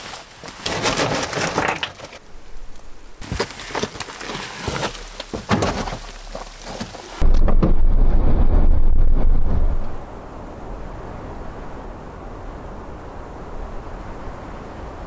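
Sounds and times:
footsteps: 3.2s - 7.3s
knocks and crackles from handling: 3.2s - 7.7s
wind rumbling on microphone: 5.6s - 15.0s.

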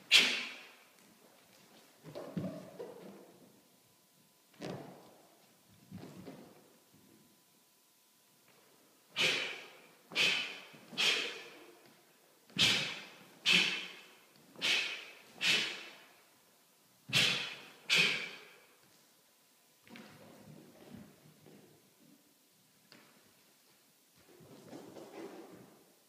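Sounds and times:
forceful exhale: 9.2s - 11.6s, 14.6s - 16.0s, 17.2s - 18.6s.

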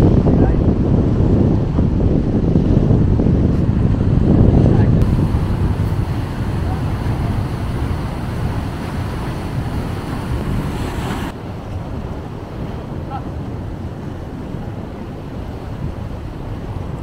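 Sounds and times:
wind buffeting microphone: 0.0s - 17.0s
sea waves breaking: 3.4s - 17.0s.

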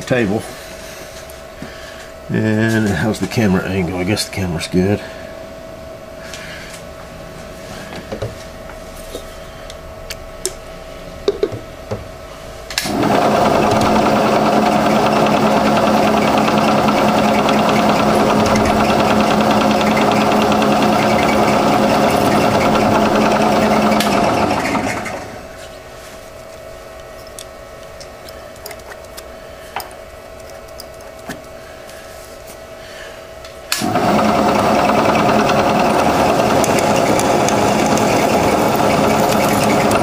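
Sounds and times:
milling machine spindle running: 12.9s - 25.6s, 33.8s - 40.0s
drill bit boring metal: 13.0s - 25.2s, 33.8s - 40.0s.

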